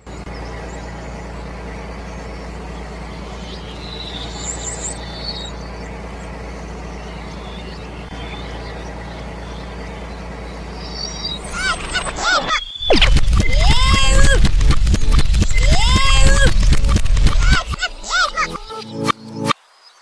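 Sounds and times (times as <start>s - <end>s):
low engine idling: 0.0s - 18.7s
bird chirps: 0.0s - 20.0s.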